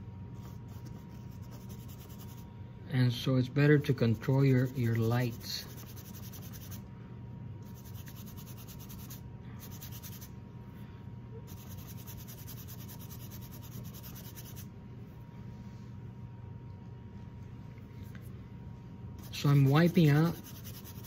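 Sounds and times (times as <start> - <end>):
bristle brush scrubbing on canvas: 19.2 - 21.0.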